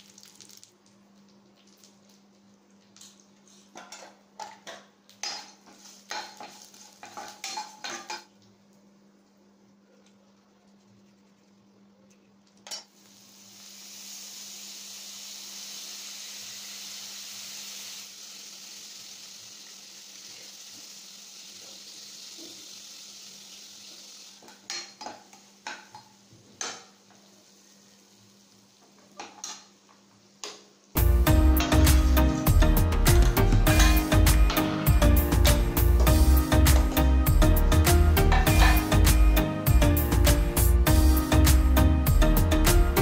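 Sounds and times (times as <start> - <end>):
seeds and leaves sizzling in oil: 5.2 - 8.2, 12.9 - 29.8.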